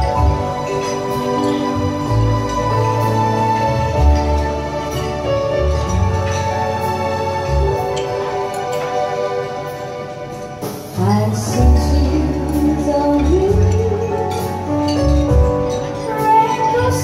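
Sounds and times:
woman singing into microphone: 11.0s - 15.0s, 15.9s - 17.0s.

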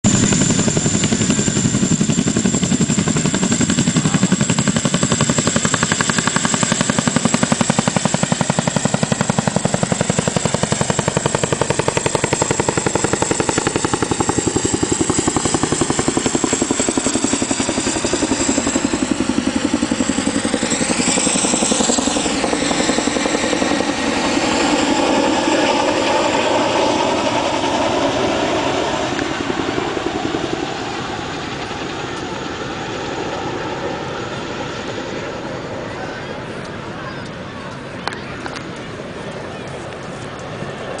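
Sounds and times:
helicopter rotor beat: 0.0s - 41.0s
high turbine whine: 0.1s - 41.0s.

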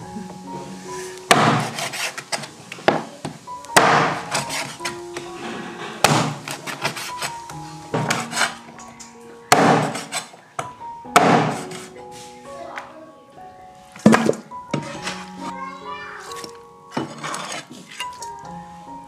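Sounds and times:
cleaver chopping chicken on wood: 1.3s - 3.0s, 3.8s - 4.7s, 6.0s - 7.1s, 9.5s - 10.3s, 11.2s - 11.8s.

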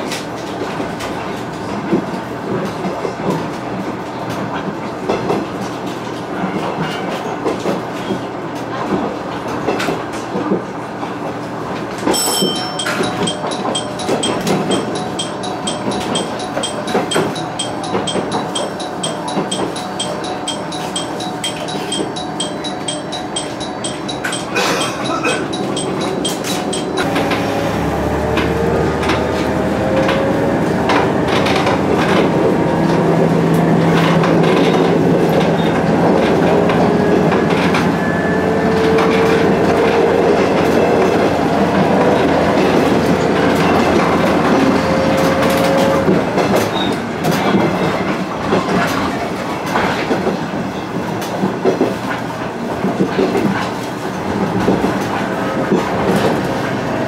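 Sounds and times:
wheels clattering on rail joints: 11.8s - 38.0s, 38.6s - 57.0s
diesel engine running: 27.0s - 32.2s.

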